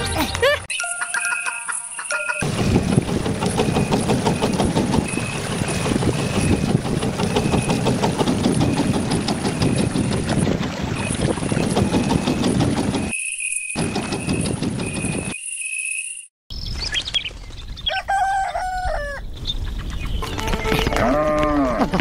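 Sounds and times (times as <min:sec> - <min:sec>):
boat engine chugging: 0:01.0 - 0:13.2, 0:13.8 - 0:15.4.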